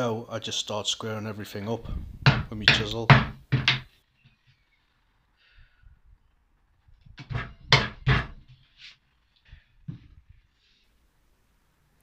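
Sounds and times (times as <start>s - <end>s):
chisel knocking wood: 2.2s - 3.9s, 7.2s - 8.5s.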